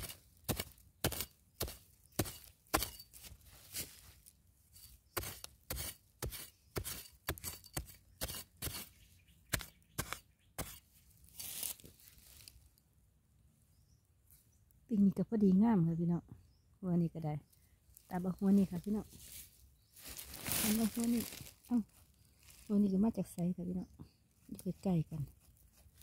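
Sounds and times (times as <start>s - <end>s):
digging tool striking hard soil: 0.0s - 3.9s, 4.7s - 10.9s
loose soil scraping: 0.0s - 12.6s, 17.9s - 23.0s, 24.5s - 26.0s.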